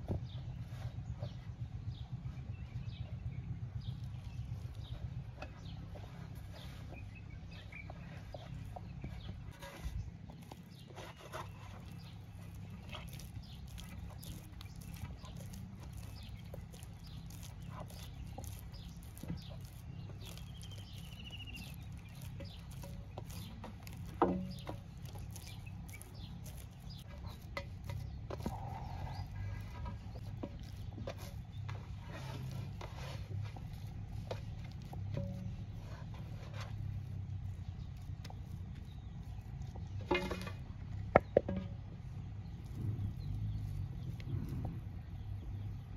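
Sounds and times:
hands kneading dough: 3.9 - 41.3
faint animal calls: 28.3 - 29.8.

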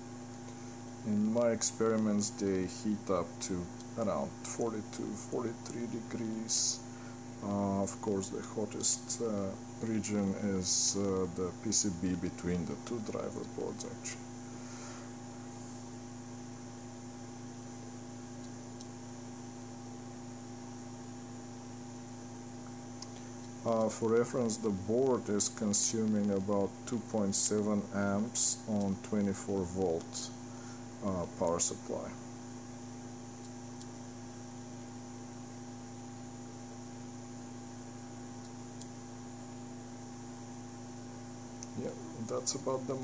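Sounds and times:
stepper motors humming: 0.0 - 16.7, 21.0 - 32.3, 38.0 - 43.0
cooling fan hiss: 0.0 - 43.0.

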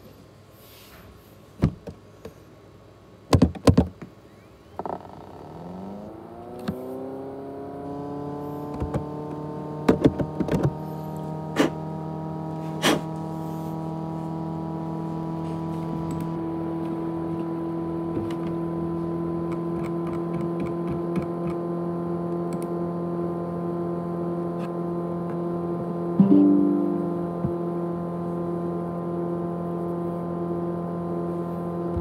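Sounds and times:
hard drive clicks and knocks: 3.3 - 4.1, 8.7 - 9.1
hard drive motor whine: 4.3 - 9.9, 10.7 - 32.0.

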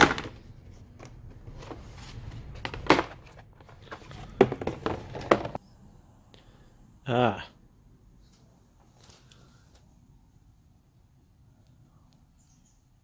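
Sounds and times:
cardboard knocks and scrapes: 0.0 - 5.6.

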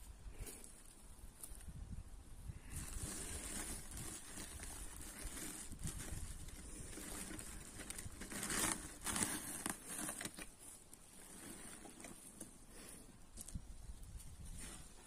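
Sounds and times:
plastic sack rustling: 2.8 - 12.6.

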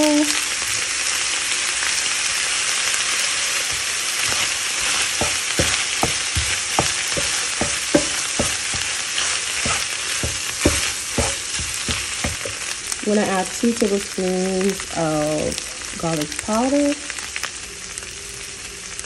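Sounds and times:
meat sizzling in a frying pan: 0.0 - 19.0
wooden spatula scraping a pan: 3.6 - 12.7.

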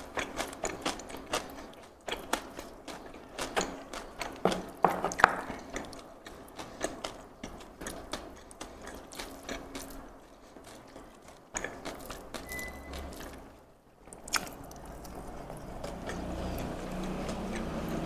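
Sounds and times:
crispy food crackling under fingers: 0.0 - 18.0.

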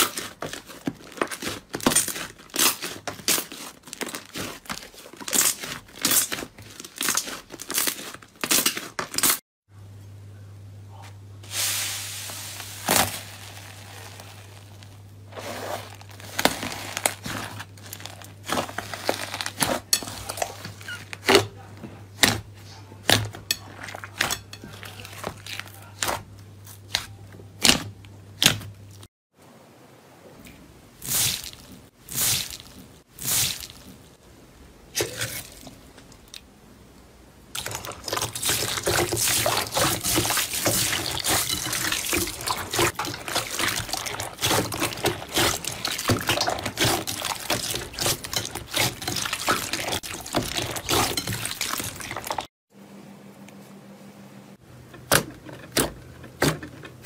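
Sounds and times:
slime crackling: 0.0 - 8.8, 12.4 - 21.4, 37.5 - 52.5
slime popping and squelching: 15.9 - 21.4, 37.6 - 52.4.

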